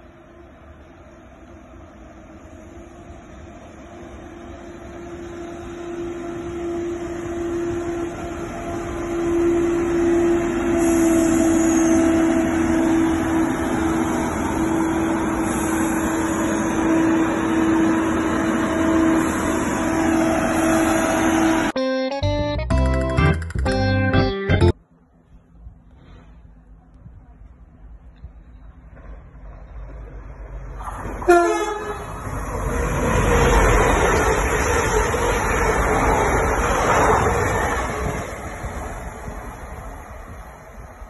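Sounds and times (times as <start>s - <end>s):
train running past: 0.0s - 21.8s, 24.8s - 41.0s.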